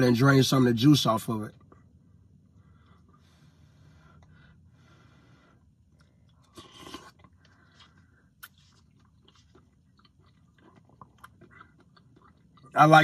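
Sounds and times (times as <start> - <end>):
man chewing: 1.6 - 12.8.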